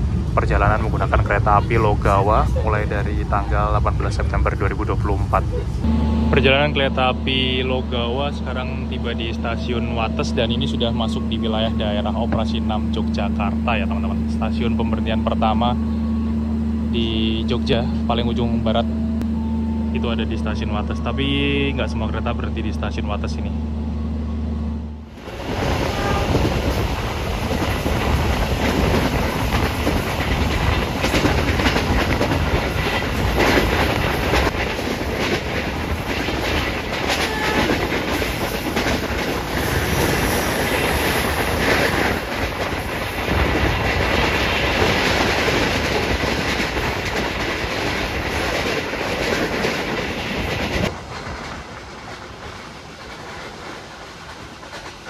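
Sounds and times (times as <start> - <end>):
train wheels clattering on rails: 25.2 - 55.0.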